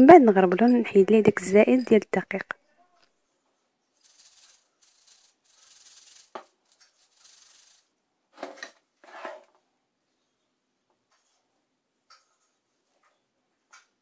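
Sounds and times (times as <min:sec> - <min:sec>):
sieve shaking and rustling: 0:04.0 - 0:07.9.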